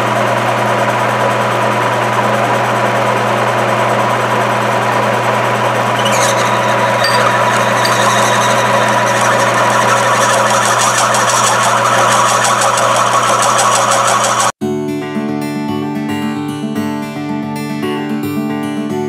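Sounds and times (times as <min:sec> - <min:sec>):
milling machine humming: 0:05.1 - 0:14.5
rapid high buzz: 0:05.1 - 0:14.6.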